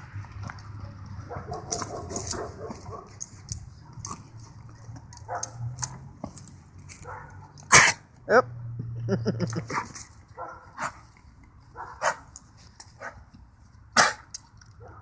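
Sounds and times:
dog chewing a ball: 0:00.4 - 0:07.3.

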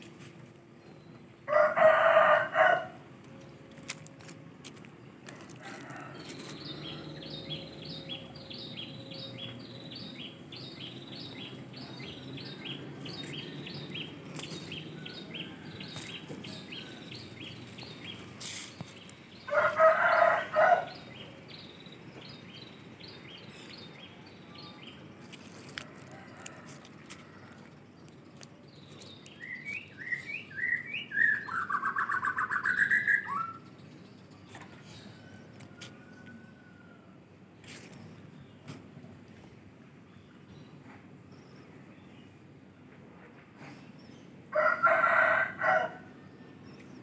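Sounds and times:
rooster crowing: 0:01.5 - 0:03.0, 0:19.5 - 0:21.1, 0:44.5 - 0:46.1.

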